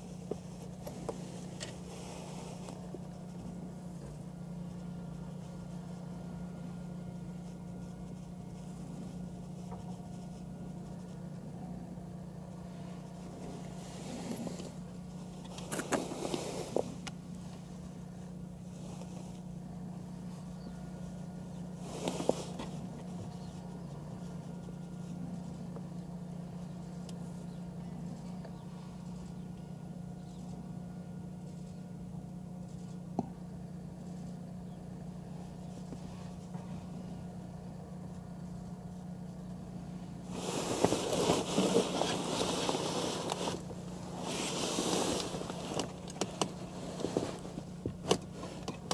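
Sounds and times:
rustling noise: 0.0s - 6.4s, 12.5s - 29.4s, 38.5s - 48.9s
steady low hum: 0.0s - 48.9s.

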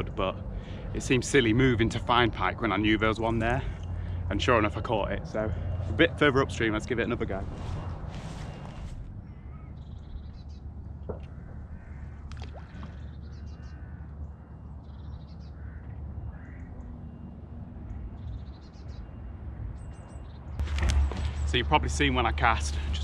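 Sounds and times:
crows cawing: 9.3s - 9.8s, 11.1s - 17.3s.

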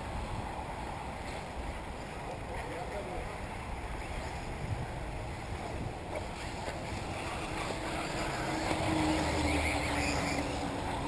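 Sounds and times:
wind noise on microphone: 3.5s - 11.0s
electric rc buggy motor whine: 7.1s - 11.0s.

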